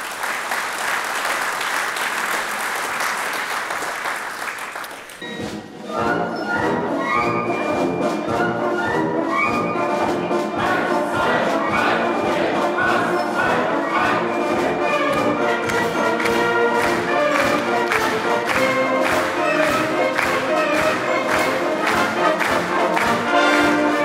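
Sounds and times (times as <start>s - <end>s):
audience applause: 0.0s - 5.2s, 14.6s - 24.0s
wind orchestra playing: 5.2s - 24.0s.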